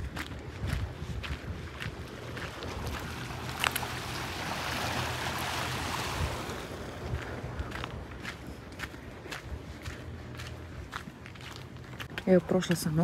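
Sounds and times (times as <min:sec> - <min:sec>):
steady low rumble: 0:00.0 - 0:13.0
wave breaking and washing in: 0:02.5 - 0:07.6.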